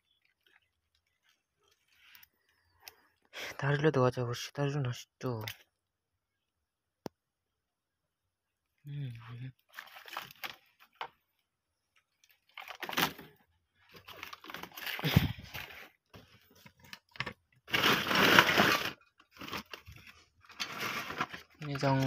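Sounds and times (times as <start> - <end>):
plastic sack rustling: 12.5 - 15.9, 17.7 - 22.0.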